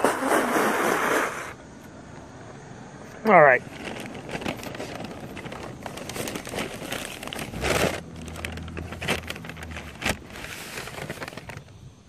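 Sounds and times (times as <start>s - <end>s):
food packaging crinkling: 3.6s - 11.8s.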